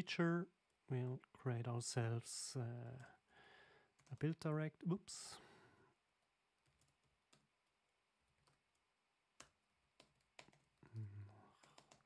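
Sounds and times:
keyboard typing clicks: 0:09.4 - 0:10.7, 0:11.6 - 0:12.0.

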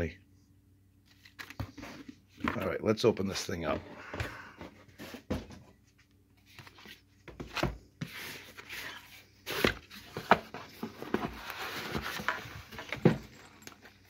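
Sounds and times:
cardboard rustling and scraping: 0:03.6 - 0:14.0.

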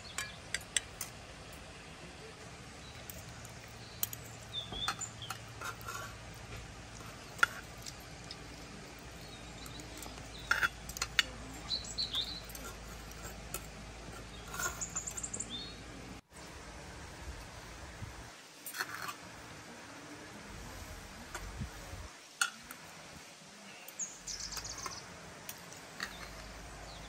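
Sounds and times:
birds chirping: 0:00.0 - 0:16.2, 0:23.5 - 0:27.0
cutlery clinking on metal plate: 0:09.3 - 0:15.4.

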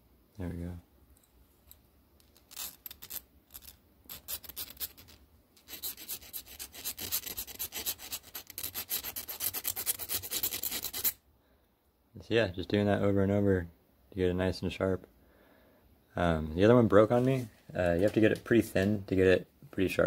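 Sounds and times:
file strokes on steel pin: 0:02.4 - 0:11.2.

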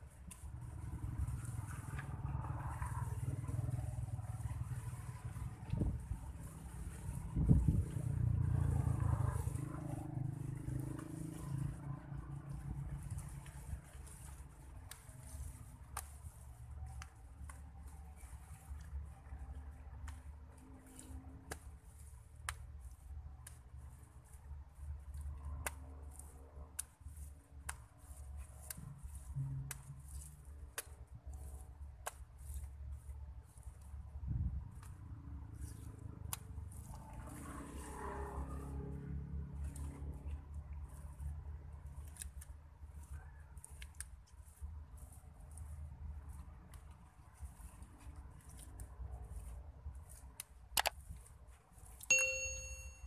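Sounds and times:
wet clay squelching in mould: 0:00.1 - 0:52.1.

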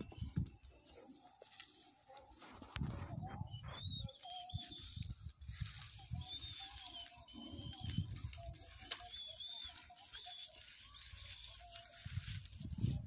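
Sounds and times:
footsteps rustling dry grass: 0:00.0 - 0:13.0
bird chirping: 0:03.2 - 0:05.2, 0:05.9 - 0:12.0.

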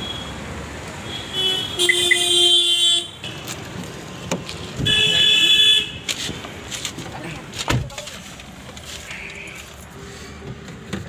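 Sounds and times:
street traffic noise: 0:00.0 - 0:11.0
vehicle horns honking: 0:01.0 - 0:03.5, 0:04.8 - 0:06.1.

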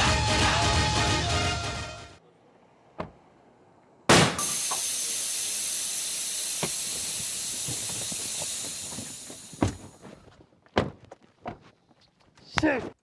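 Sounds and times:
air hissing out of tyre: 0:04.2 - 0:10.0.

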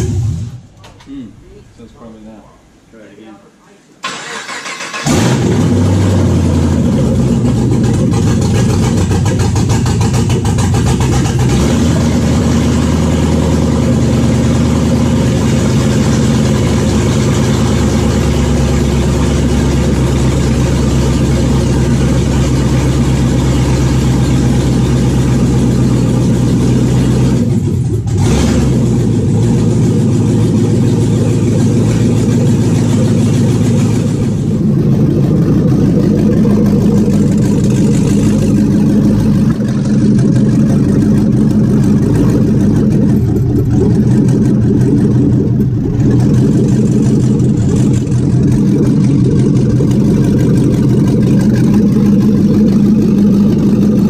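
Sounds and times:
car engine starting and running: 0:00.0 - 0:02.2, 0:04.0 - 0:54.0.

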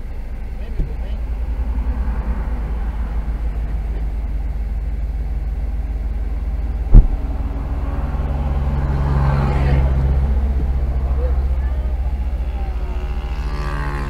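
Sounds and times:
car engine idling: 0:00.0 - 0:14.0
heavy truck approaching: 0:00.0 - 0:14.0
sharp thump: 0:06.9 - 0:07.4.

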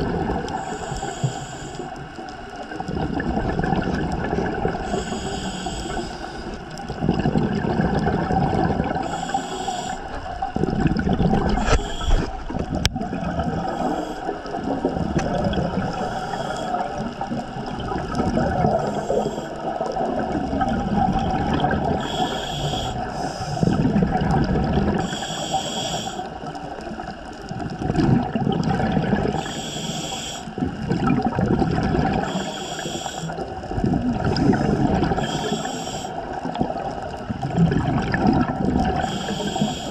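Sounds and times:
exhaled bubbles gurgling: 0:00.0 - 0:39.9
regulator inhale hiss: 0:00.5 - 0:02.7, 0:04.8 - 0:06.9, 0:08.8 - 0:10.4, 0:11.5 - 0:12.5, 0:13.6 - 0:14.7, 0:15.8 - 0:17.0, 0:18.7 - 0:19.9, 0:21.9 - 0:23.8, 0:24.9 - 0:26.6, 0:29.3 - 0:30.6, 0:32.2 - 0:36.5, 0:38.9 - 0:39.9.

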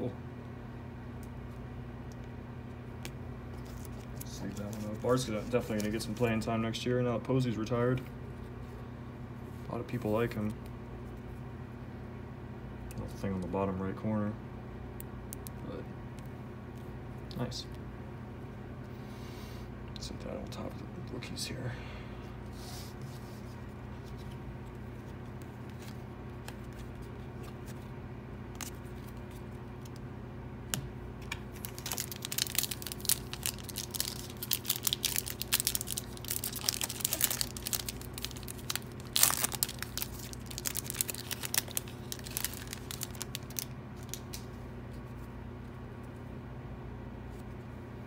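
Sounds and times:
steady low hum: 0:00.0 - 0:48.0
foil wrapper crinkling and tearing: 0:03.6 - 0:06.4, 0:31.5 - 0:44.5.

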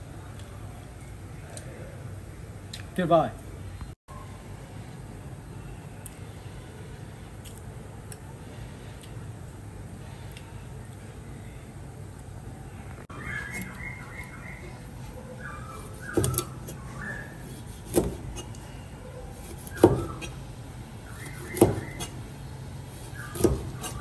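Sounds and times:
cleaver slicing raw fish: 0:15.7 - 0:18.6, 0:19.3 - 0:20.4, 0:21.1 - 0:22.2, 0:22.9 - 0:24.0.

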